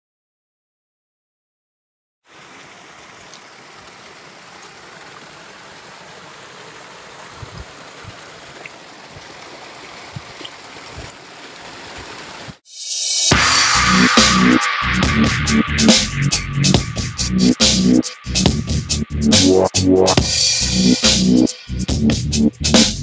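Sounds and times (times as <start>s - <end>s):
waterfall splashing into pool: 2.2s - 12.7s.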